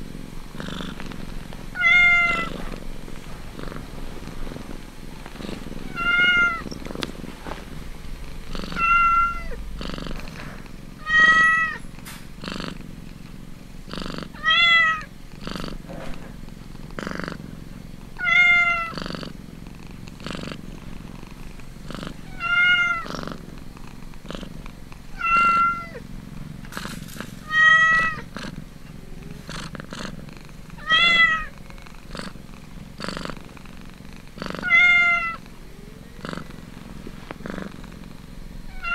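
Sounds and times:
cat purring: 0:00.0 - 0:38.9
cat mewing: 0:01.8 - 0:02.6, 0:05.9 - 0:06.8, 0:08.7 - 0:09.6, 0:11.0 - 0:11.8, 0:14.3 - 0:15.1, 0:18.2 - 0:19.0, 0:22.2 - 0:23.1, 0:25.2 - 0:26.0, 0:27.4 - 0:28.3, 0:30.8 - 0:31.6, 0:34.6 - 0:36.4.

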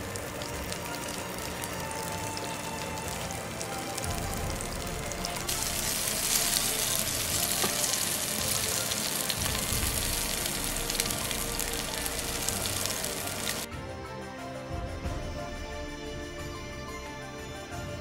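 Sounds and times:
fish frying in oil: 0:00.0 - 0:13.7.

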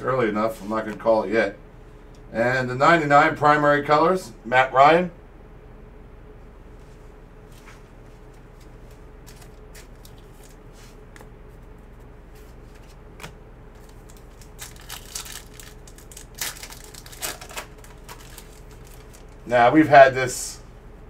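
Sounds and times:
foil pack crinkling: 0:09.2 - 0:11.0, 0:12.4 - 0:19.6.

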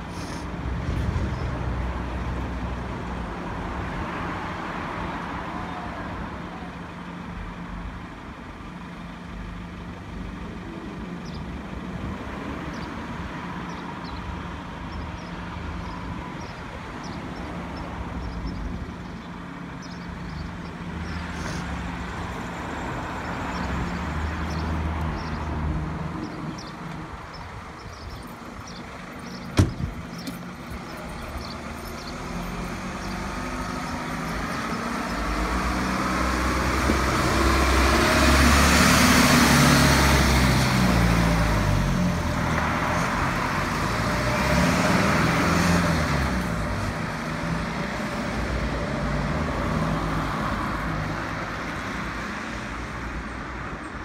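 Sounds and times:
fire engine diesel accelerating: 0:28.4 - 0:51.1.

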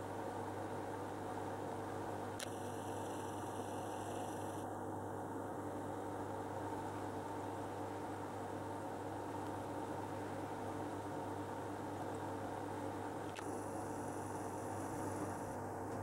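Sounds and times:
aquarium equipment humming: 0:00.0 - 0:16.0
faint click: 0:02.4 - 0:02.8, 0:13.3 - 0:13.6.

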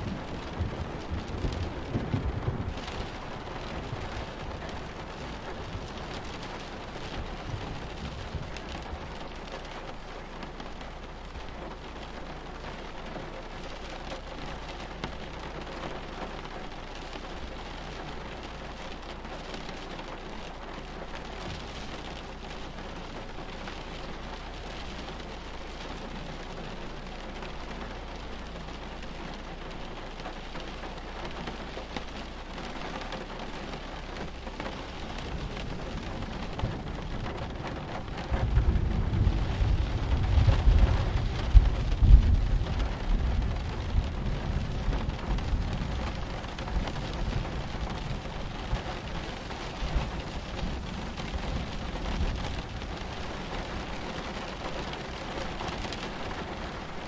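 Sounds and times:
rolling thunder: 0:00.0 - 0:06.0, 0:35.1 - 0:49.3
steady rain: 0:00.0 - 0:57.0.

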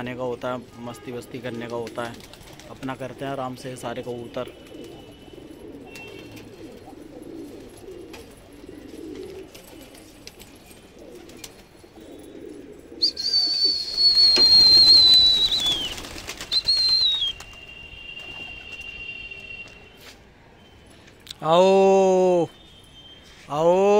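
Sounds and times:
pigeons cooing: 0:01.8 - 0:17.2
loud high whistle: 0:13.0 - 0:20.8.

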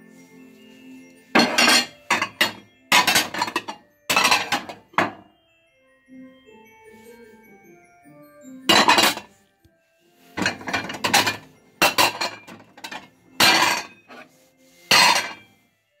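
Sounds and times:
faint background music: 0:00.0 - 0:16.0
porcelain plates clattering: 0:01.4 - 0:05.2, 0:08.7 - 0:09.3, 0:10.4 - 0:14.3, 0:14.9 - 0:15.5.

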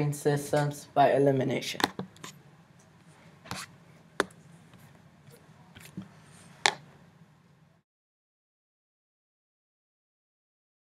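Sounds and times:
faint room noise: 0:00.0 - 0:07.8.

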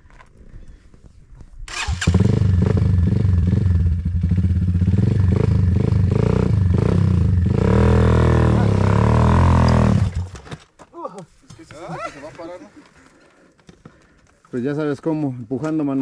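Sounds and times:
dirt bike engine at low revs: 0:01.9 - 0:10.4.

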